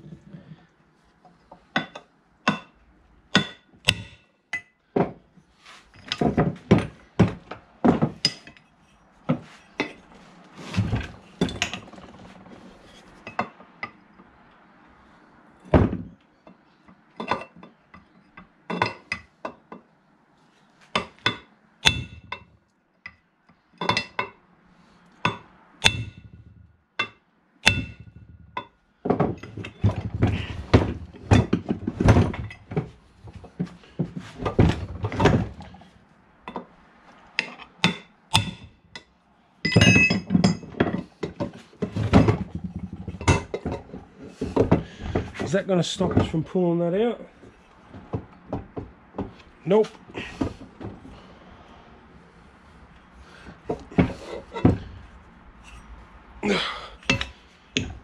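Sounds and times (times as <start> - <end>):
metal tools and parts clinking: 5.8 - 7.0, 16.4 - 19.3, 25.2 - 32.9, 37.4 - 43.9, 55.6 - 56.0, 57.0 - 58.0.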